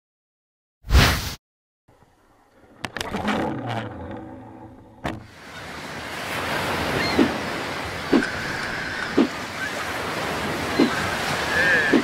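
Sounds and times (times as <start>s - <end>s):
wind: 1.9s - 12.0s
surf: 5.3s - 12.0s.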